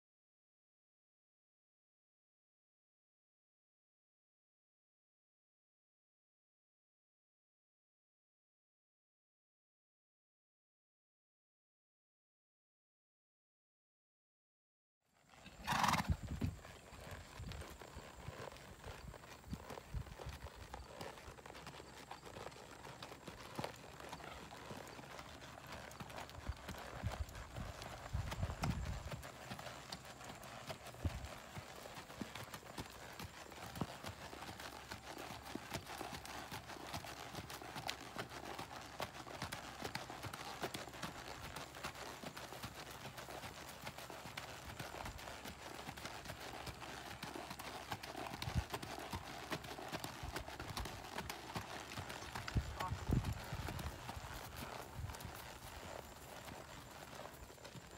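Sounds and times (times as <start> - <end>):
horse hoofbeats on dirt: 15.2 - 57.9.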